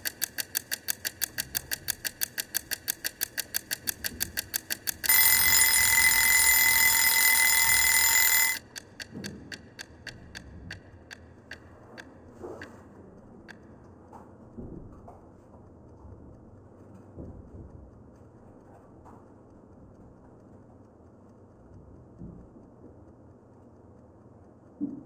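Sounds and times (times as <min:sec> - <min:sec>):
kitchen timer ticking: 0:00.0 - 0:12.2
timer bell ringing: 0:05.0 - 0:08.6.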